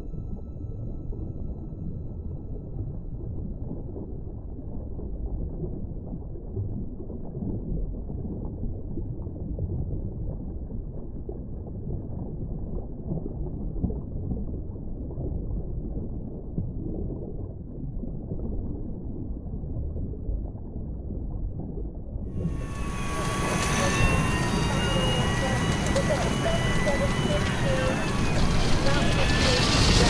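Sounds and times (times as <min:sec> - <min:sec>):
muffled low rumble: 0:22.4 - 0:30.0.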